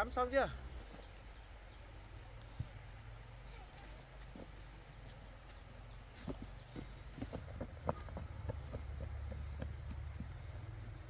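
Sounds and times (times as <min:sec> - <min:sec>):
footsteps on dry soil: 0:03.5 - 0:11.0.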